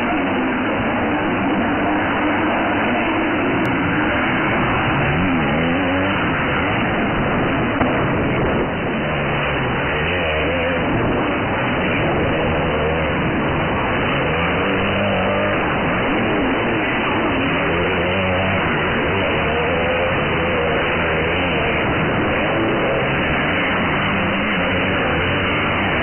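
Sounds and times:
motocross bike engines revving: 0.0 - 26.0.

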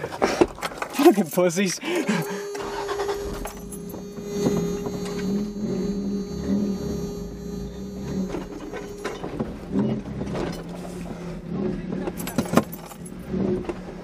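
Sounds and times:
steady higher tone: 1.8 - 11.5
truck engine idling: 1.8 - 14.0.

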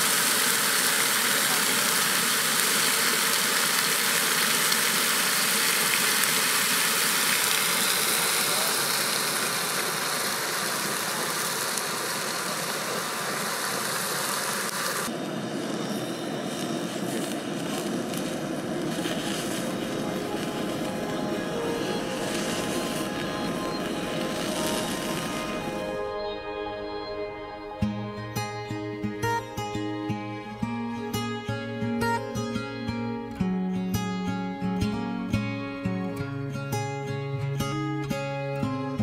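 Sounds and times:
bacon sizzling on a griddle: 0.0 - 15.1, 15.8 - 25.8
camp stove burner rumble: 0.0 - 26.0.

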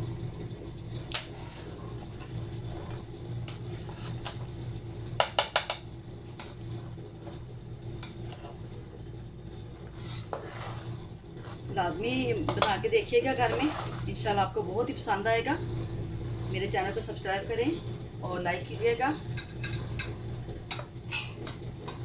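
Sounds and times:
steady low hum: 0.0 - 22.0
metal spoon scraping a pot: 1.1 - 4.4, 6.3 - 8.8, 9.8 - 11.7, 13.4 - 14.2.

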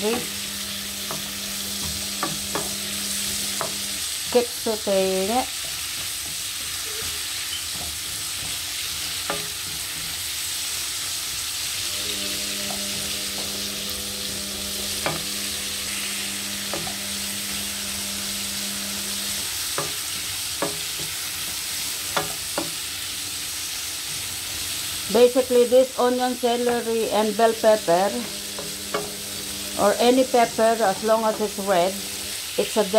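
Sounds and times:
vegetables sizzling in frying pan: 0.0 - 32.9
low steady hum: 11.8 - 19.5, 25.1 - 32.9.

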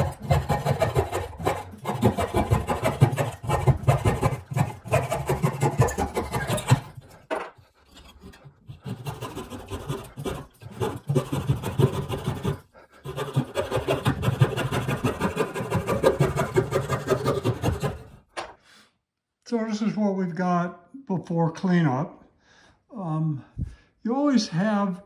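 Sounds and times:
coping saw cutting wood: 0.0 - 18.3.

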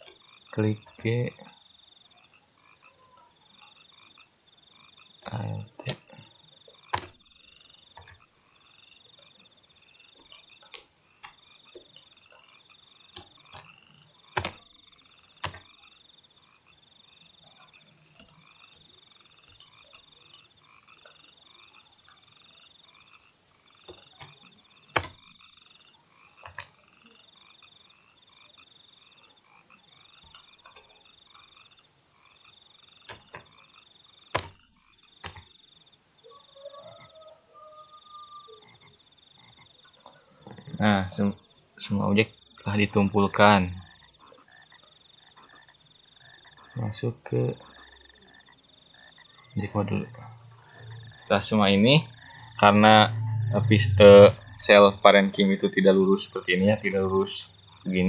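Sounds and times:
computer keyboard and mouse clicks: 6.9 - 7.2, 13.1 - 13.8, 14.4 - 14.6, 15.4 - 15.7, 23.8 - 25.2, 26.4 - 26.7, 34.3 - 34.6, 35.2 - 35.5
high-pitched chorus of calling animals: 36.2 - 41.0, 43.8 - 55.2.

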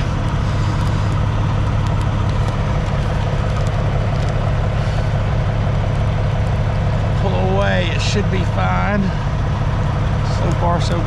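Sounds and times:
engine idling: 0.0 - 11.0.

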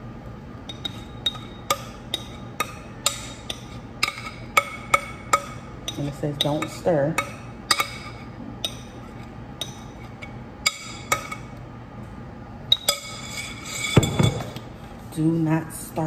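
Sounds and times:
utensil clinking on glass bowl: 0.7 - 9.0, 12.7 - 14.6.

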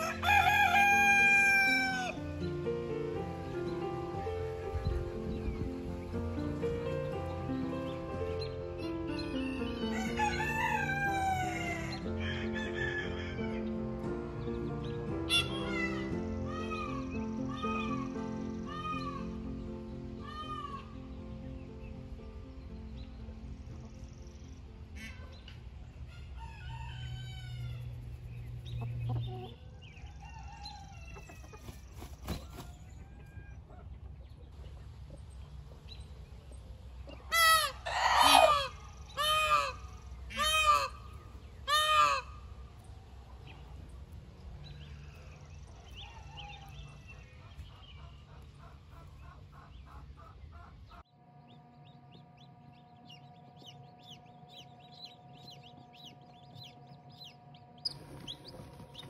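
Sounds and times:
chickens clucking: 24.9 - 51.1, 52.4 - 59.0
loud short chicken calls: 37.3 - 41.0.

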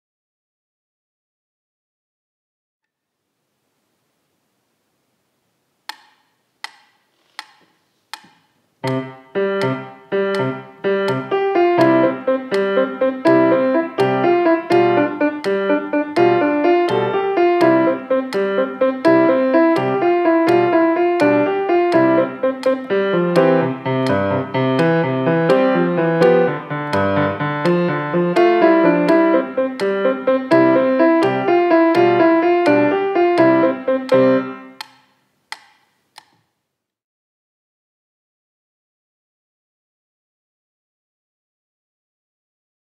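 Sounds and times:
metronome clicks: 5.9 - 36.4
grand piano playing a lively jig: 8.8 - 34.8.

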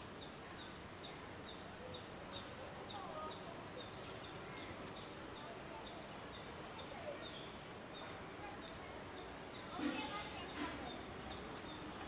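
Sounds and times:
steady background hiss: 0.0 - 12.0.

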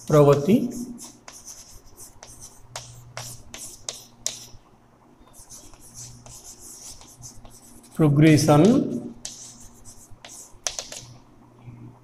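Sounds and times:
chalk scratching strokes: 0.0 - 4.6, 5.4 - 8.0, 9.2 - 11.1
chalk tapping on chalkboard: 0.0 - 4.6, 5.5 - 7.9, 8.6 - 11.1.

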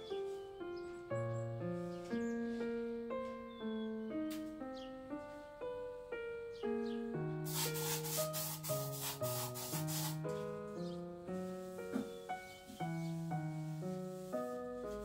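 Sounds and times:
piano music: 0.0 - 15.0
aerosol spray can hissing: 7.5 - 10.4.

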